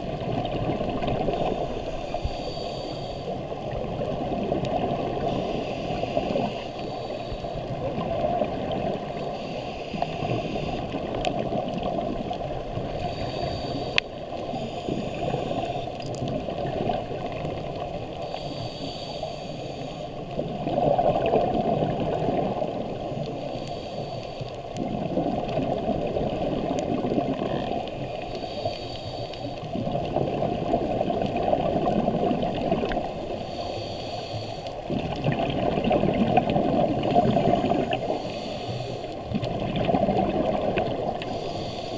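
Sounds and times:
underwater exhaled air bubbling: 0:00.0 - 0:41.9
inhalation hiss: 0:01.4 - 0:03.3, 0:05.2 - 0:07.6, 0:09.3 - 0:10.9, 0:13.0 - 0:15.9, 0:18.2 - 0:20.2, 0:23.4 - 0:24.5, 0:28.3 - 0:29.6, 0:33.4 - 0:34.8, 0:37.3 - 0:39.2, 0:41.2 - 0:41.9.

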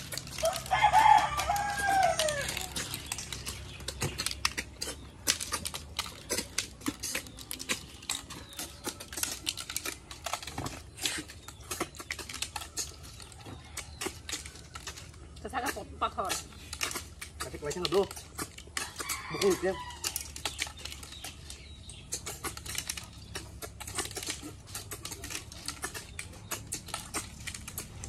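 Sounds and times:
rooster crowing: 0:00.4 - 0:02.8.

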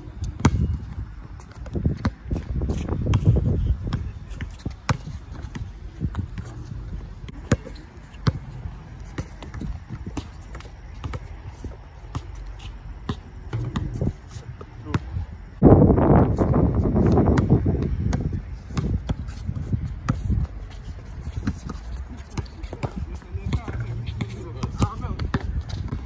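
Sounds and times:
basketball bouncing on hard court: 0:00.2 - 0:06.7, 0:07.3 - 0:11.3, 0:13.1 - 0:14.0, 0:21.4 - 0:26.0.

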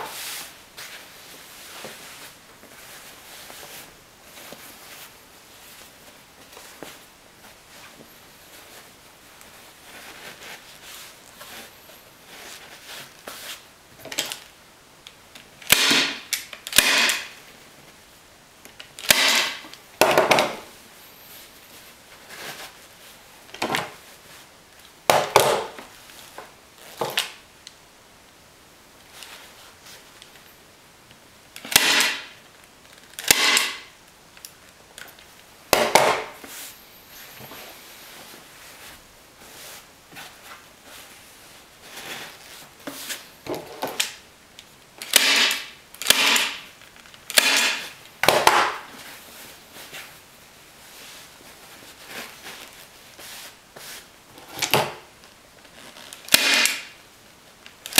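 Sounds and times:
fabric rustling: 0:00.0 - 0:13.7, 0:36.4 - 0:43.8, 0:48.9 - 0:54.5
staple gun firing: 0:15.7 - 0:17.3, 0:31.6 - 0:32.3, 0:33.2 - 0:33.8, 0:45.0 - 0:46.6, 0:47.3 - 0:48.7, 0:56.3 - 0:56.8.

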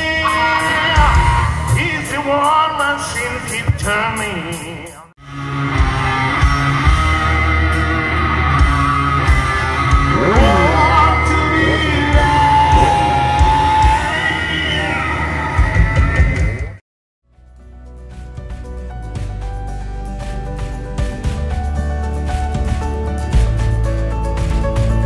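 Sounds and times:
rock music with singing: 0:00.0 - 0:16.8.

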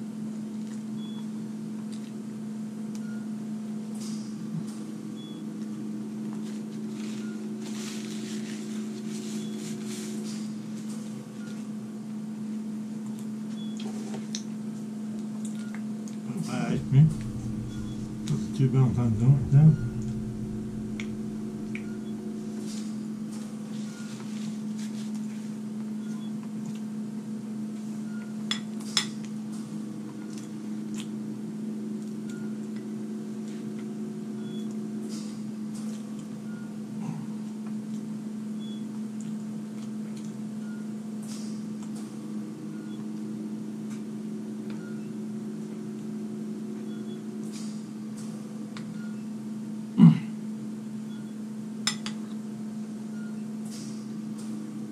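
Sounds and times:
steady low hum: 0:16.1 - 0:23.8.

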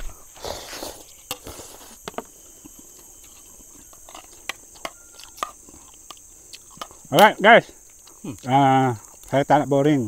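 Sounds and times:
insect chorus: 0:00.0 - 0:10.0
spoons clicking on plates: 0:03.2 - 0:07.4.

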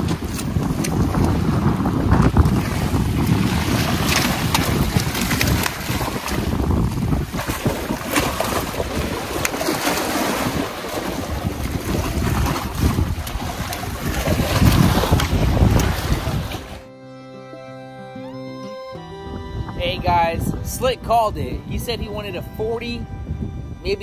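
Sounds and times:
waves splashing against rock: 0:00.0 - 0:16.9
wind buffeting microphone: 0:00.0 - 0:16.9, 0:18.9 - 0:24.0.

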